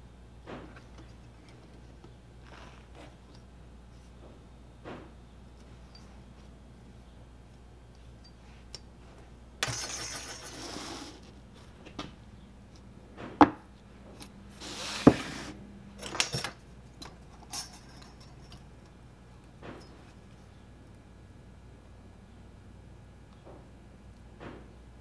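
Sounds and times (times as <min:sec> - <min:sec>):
metal parts clinking: 0:09.6 - 0:10.7, 0:16.0 - 0:18.7.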